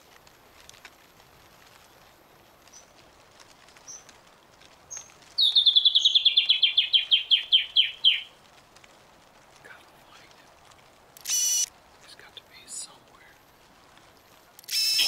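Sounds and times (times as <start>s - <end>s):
bird singing: 5.4s - 8.3s.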